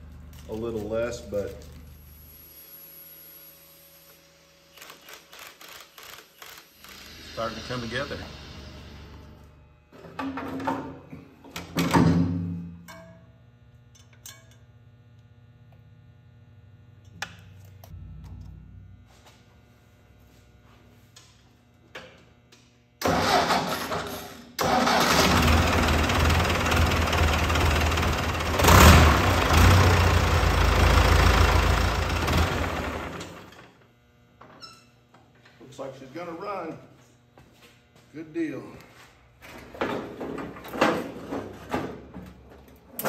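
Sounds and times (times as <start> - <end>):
tractor diesel engine starting: 23.0 - 33.5.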